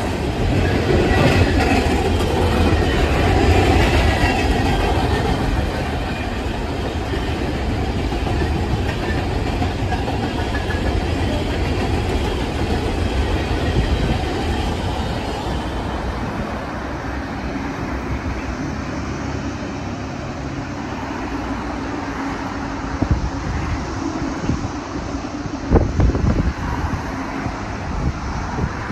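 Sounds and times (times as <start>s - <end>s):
freight train wheels clattering: 0.0s - 18.6s.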